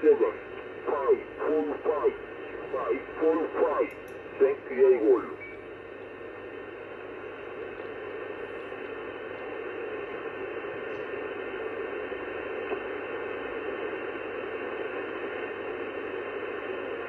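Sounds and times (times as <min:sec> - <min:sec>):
radio receiver hiss: 0:00.0 - 0:17.0.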